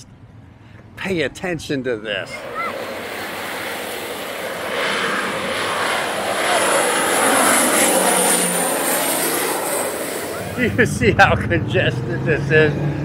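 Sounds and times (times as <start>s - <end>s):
propeller plane passing overhead: 2.0s - 13.0s
high whine dropping in pitch: 2.1s - 11.6s.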